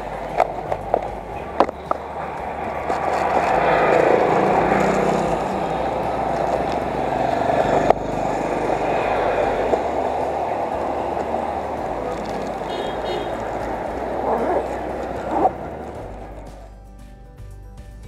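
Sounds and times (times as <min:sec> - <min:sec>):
motorcycle engines running: 0:00.0 - 0:17.0
street traffic: 0:00.0 - 0:18.0.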